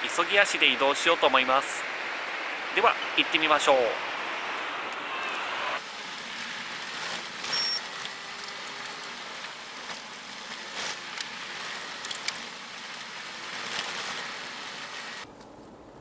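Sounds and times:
tyres crunching on gravel: 5.8s - 15.3s.

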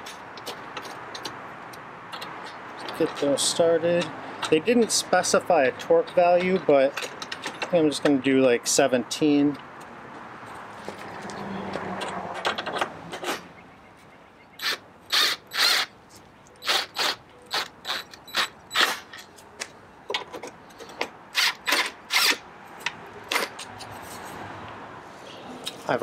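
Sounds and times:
cordless drill bursts: 14.6s - 15.9s, 16.6s - 19.1s, 21.3s - 22.4s.

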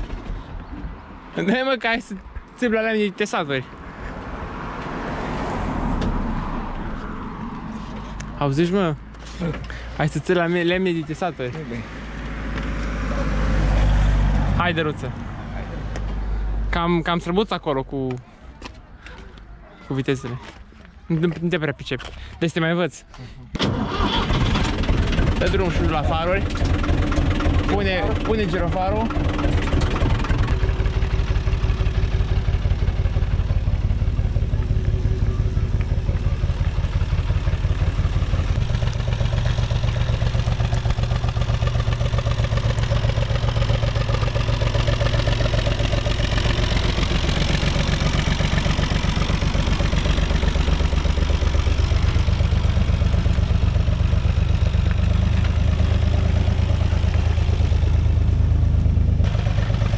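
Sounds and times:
diesel tractor engine chugging: 23.6s - 59.9s.

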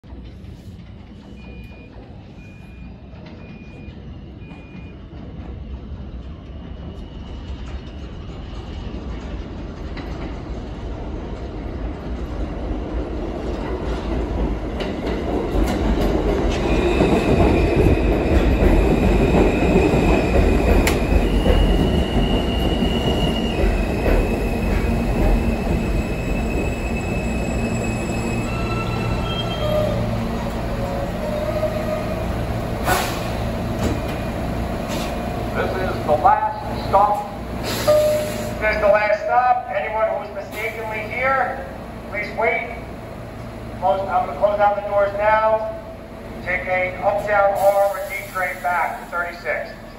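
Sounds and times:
wheels rumbling on rails: 0.0s - 40.5s
subway train pulling into station: 0.0s - 49.9s
high squealing tones: 21.2s - 32.4s.

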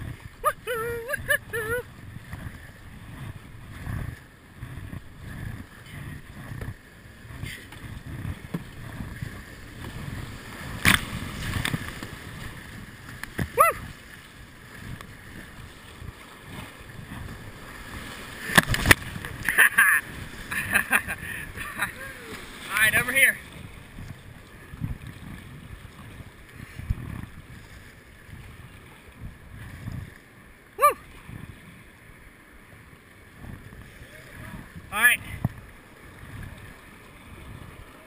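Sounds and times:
rapids rushing and splashing: 0.0s - 27.6s
person shouting: 0.4s - 1.8s, 13.5s - 13.9s, 30.8s - 31.0s
sharp water splash: 10.2s - 12.6s, 17.9s - 20.6s.

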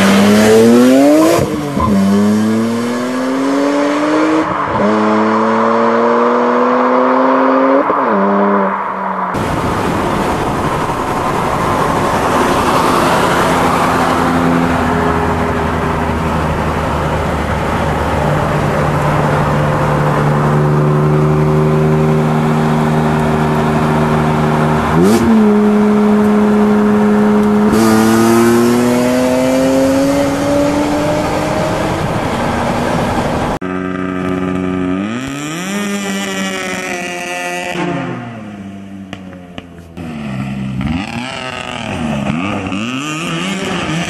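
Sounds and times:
car engine pulling hard: 0.0s - 44.0s
wind and road rush: 0.0s - 44.0s.

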